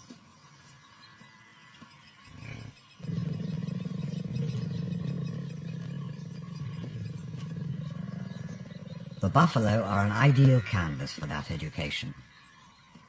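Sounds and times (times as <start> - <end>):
lioness growling: 2.3 - 10.2.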